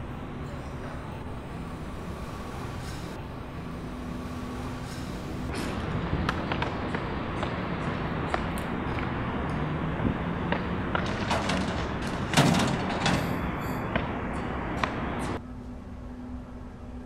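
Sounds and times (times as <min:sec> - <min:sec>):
outdoor background noise: 0:00.0 - 0:17.0
loud clunk on metal bin: 0:11.0 - 0:13.4.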